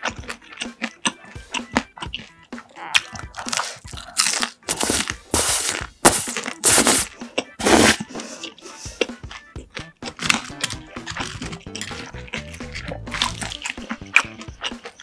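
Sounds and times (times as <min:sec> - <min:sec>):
small wet chewing clicks: 0:00.0 - 0:04.7, 0:08.4 - 0:15.0
crisp fried food crunching: 0:00.0 - 0:15.0.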